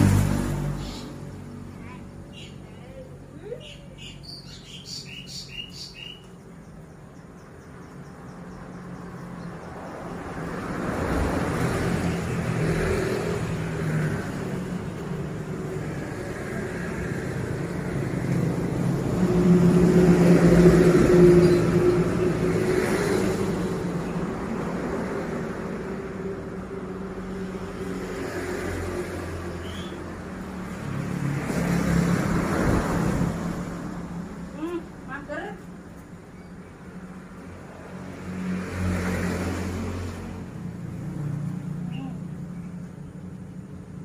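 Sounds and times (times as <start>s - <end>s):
road noise: 0.0s - 44.0s
bird chirps: 2.3s - 10.0s, 29.6s - 30.0s.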